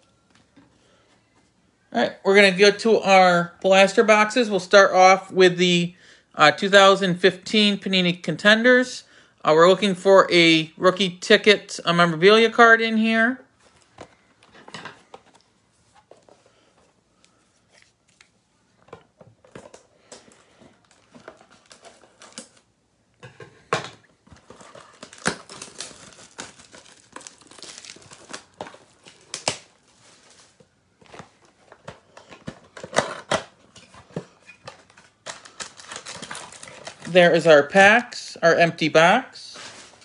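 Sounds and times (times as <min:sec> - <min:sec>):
plastic wrap crinkling and tearing: 0:20.8 - 0:22.7, 0:24.3 - 0:33.2, 0:34.6 - 0:37.2.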